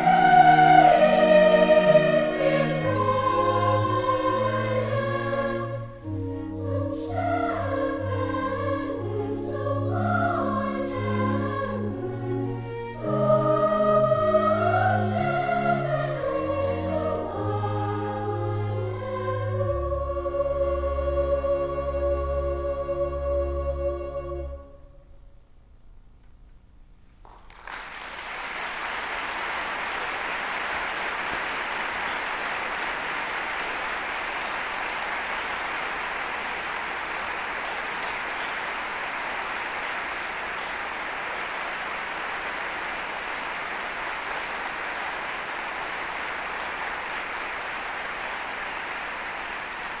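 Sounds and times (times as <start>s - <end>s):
choir singing chord: 0.0s - 25.1s
audience applauding: 27.2s - 50.0s.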